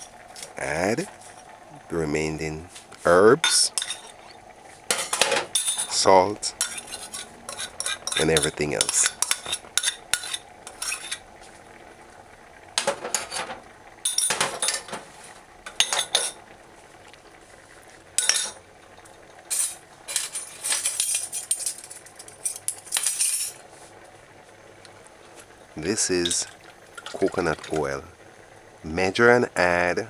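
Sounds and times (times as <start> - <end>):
metal spoon scraping a saucepan: 3.5 - 6.0, 6.6 - 11.2.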